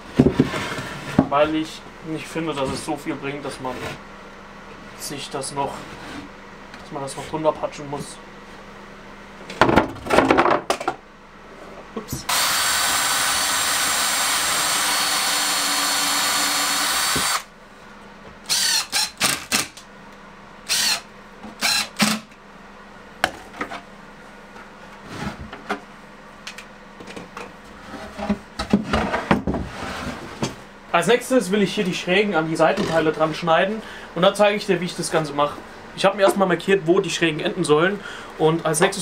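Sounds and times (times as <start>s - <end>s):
impact driver driving screws: 12.3s - 17.5s, 18.5s - 19.8s, 20.7s - 21.0s, 21.6s - 22.3s.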